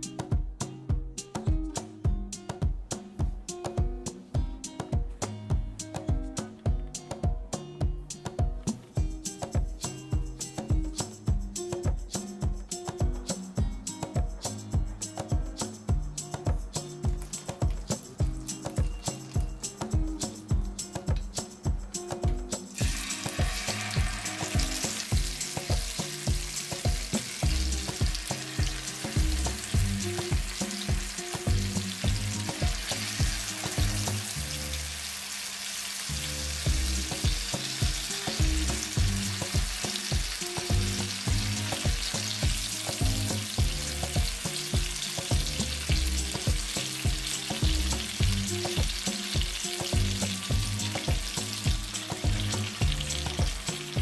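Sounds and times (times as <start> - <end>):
low steady beat: 0.0 - 34.9, 36.1 - 54.0
chicken sizzling in oil: 22.8 - 54.0.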